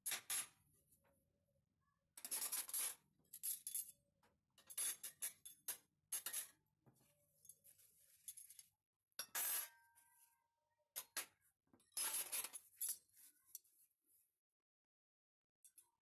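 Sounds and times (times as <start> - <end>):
dishes and cutlery clinking: 4.6 - 6.6, 11.0 - 13.6.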